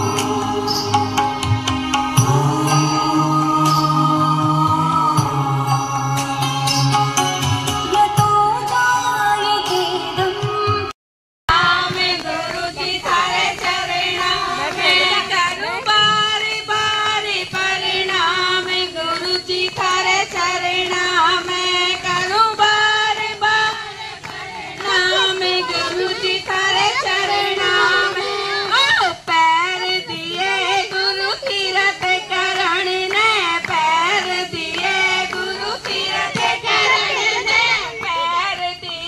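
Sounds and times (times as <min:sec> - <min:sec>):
woman singing through loudspeaker: 0:07.8 - 0:10.9, 0:11.5 - 0:39.0.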